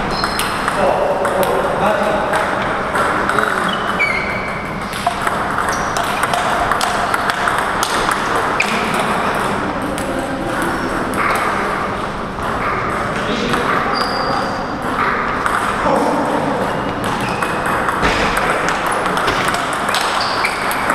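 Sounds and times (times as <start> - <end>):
table tennis ball pocking: 2.3 - 11.5, 17.0 - 20.9.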